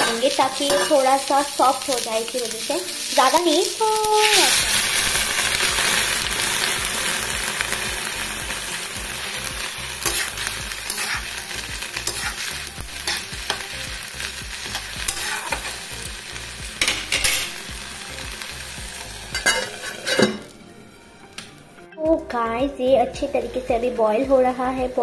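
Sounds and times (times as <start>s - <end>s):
metal spatula scraping a pan: 0.0s - 1.3s, 9.5s - 13.8s, 14.6s - 15.9s, 19.3s - 20.6s
onions sizzling in a pan: 0.0s - 25.0s.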